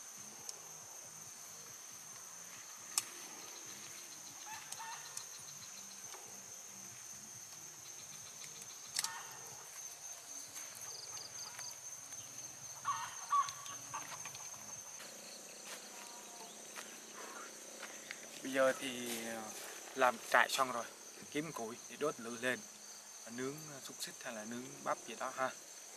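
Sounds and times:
insects chirring: 0:00.0 - 0:25.9
tent poles clicking: 0:02.0 - 0:06.4, 0:07.3 - 0:14.9.

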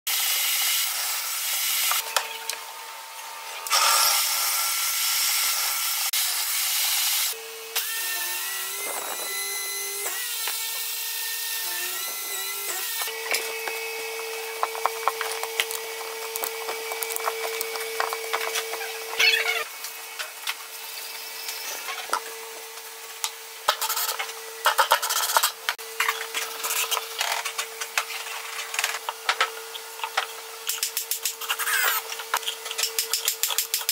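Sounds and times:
table saw cutting wood: 0:00.1 - 0:02.4, 0:03.4 - 0:33.0
wood rubbing and scraping: 0:13.2 - 0:19.6.

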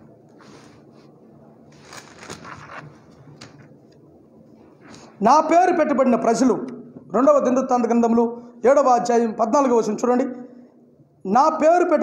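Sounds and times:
paper pages turning: 0:01.7 - 0:03.7.

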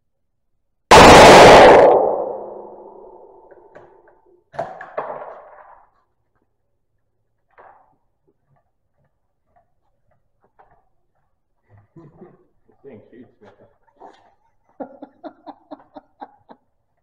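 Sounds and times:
rifle shot echo: 0:00.9 - 0:03.6.

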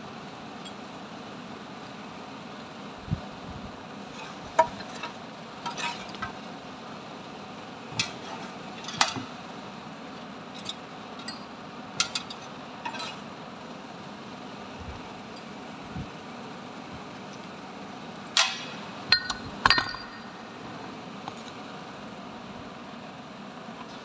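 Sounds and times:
steady background noise: 0:00.0 - 0:24.0.

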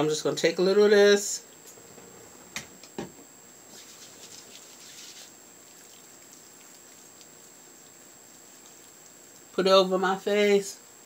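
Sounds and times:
wet rubbing of face wash: 0:03.7 - 0:09.6.

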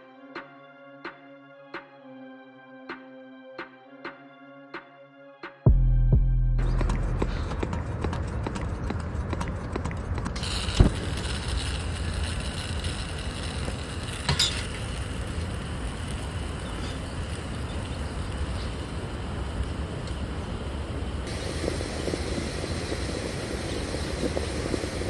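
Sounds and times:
gas burner hissing: 0:06.7 - 0:25.0
gas igniting pop: 0:10.4 - 0:11.7.

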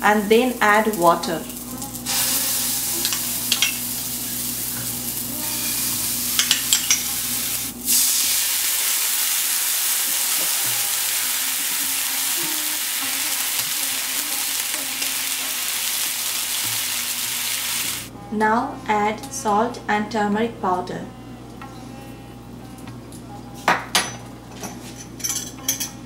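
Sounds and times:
oil sizzling in frying pan: 0:00.0 - 0:18.1.

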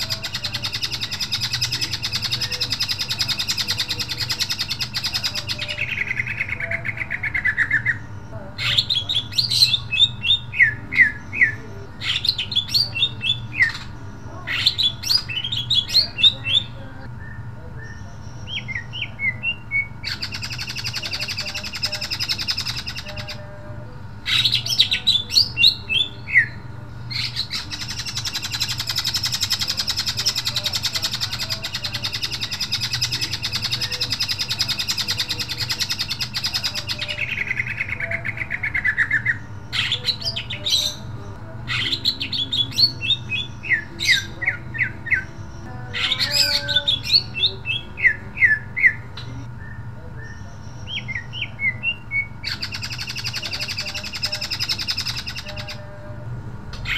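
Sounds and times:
bird singing: 0:00.0 - 0:56.9.

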